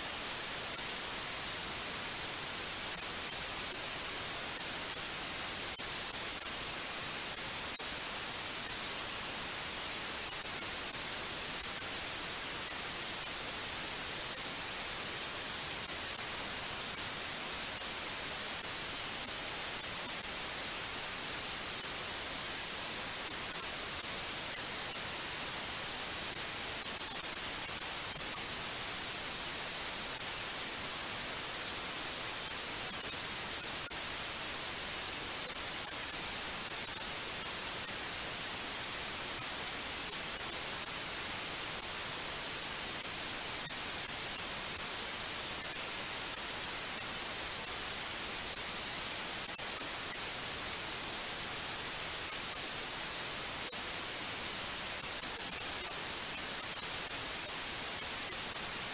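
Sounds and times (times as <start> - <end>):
white noise hiss: 0.0 - 58.9.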